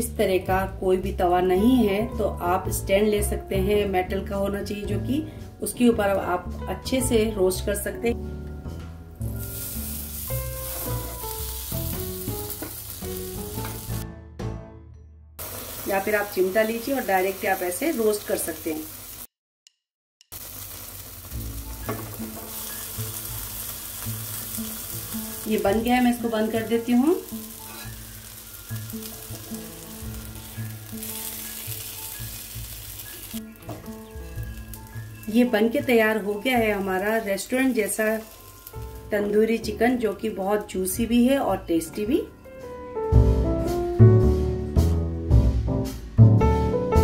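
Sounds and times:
background music: 0:00.0 - 0:15.3, 0:21.4 - 0:47.0
chicken sizzling on a pan: 0:09.2 - 0:14.0, 0:15.4 - 0:19.3, 0:20.3 - 0:41.3.

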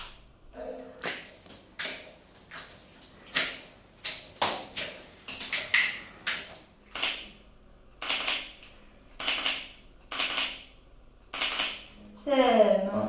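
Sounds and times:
wet smacking and squelching: 0:01.0 - 0:07.4.

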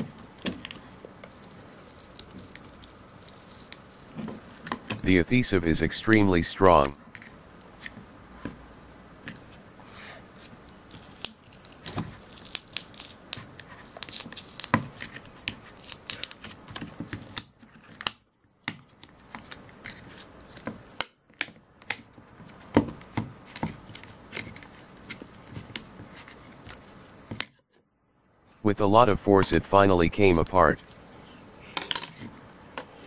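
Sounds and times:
adhesive tearing crackles: 0:10.9 - 0:16.5.

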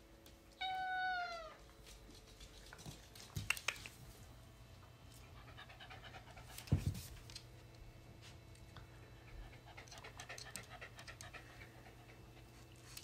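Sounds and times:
cat meowing: 0:00.6 - 0:01.6
dog panting: 0:09.0 - 0:13.0.

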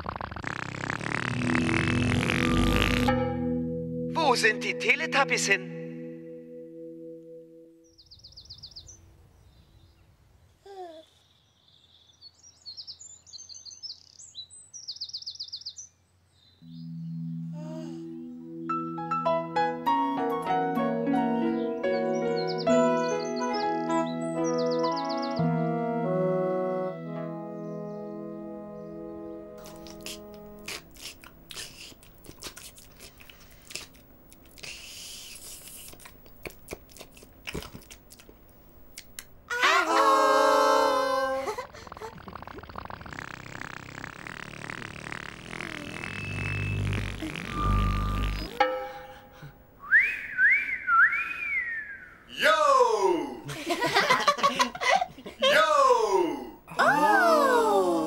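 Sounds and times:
faint outdoor background: 0:00.0 - 0:58.0
low musical chord: 0:03.1 - 0:08.0, 0:16.6 - 0:23.0, 0:25.3 - 0:29.6
songbirds chirping: 0:07.8 - 0:17.5, 0:21.4 - 0:30.6
loud horn-like tone: 0:45.7 - 0:49.0.

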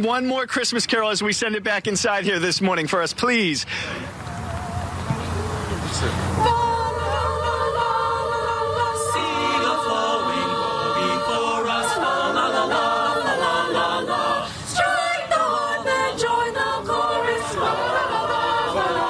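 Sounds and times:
choir singing a cappella: 0:04.3 - 0:19.0.

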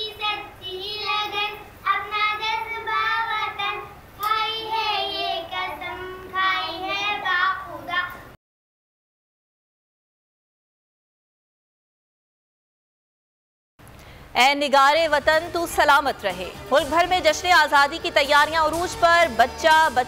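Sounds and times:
girls singing: 0:00.0 - 0:07.4.

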